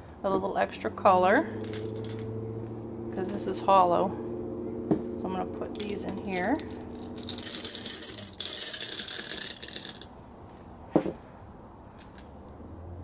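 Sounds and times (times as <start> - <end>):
glass gems clinking into glass: 5.8 - 10.1.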